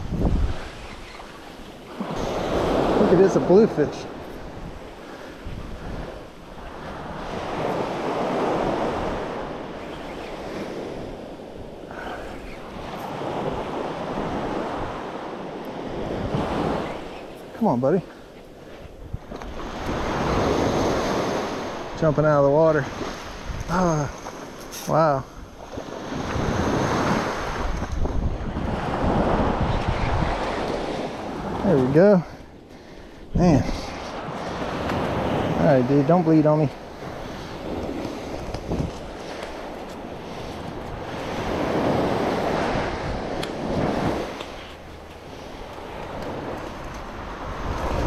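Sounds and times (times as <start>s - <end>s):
surf breaking on sand: 0.0s - 18.1s, 33.4s - 48.0s
wind buffeting microphone: 0.0s - 48.0s.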